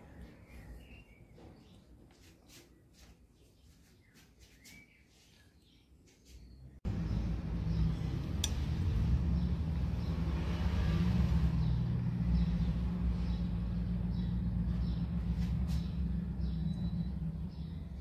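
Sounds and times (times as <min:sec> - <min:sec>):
motor rumbling: 0:06.8 - 0:18.0
faint high chirps: 0:15.7 - 0:18.0.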